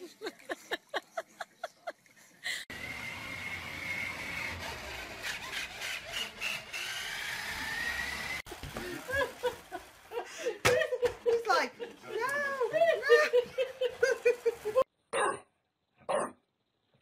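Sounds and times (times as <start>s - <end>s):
toy truck electric motor whine: 2.7s - 10.6s, 12.2s - 14.9s
plastic wheels rumbling on floor: 4.2s - 14.8s.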